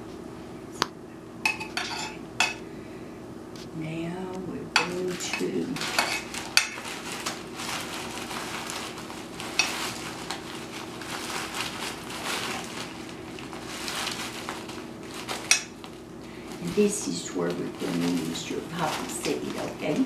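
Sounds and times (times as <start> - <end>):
crackers crushed in plastic bag: 4.9 - 20.0.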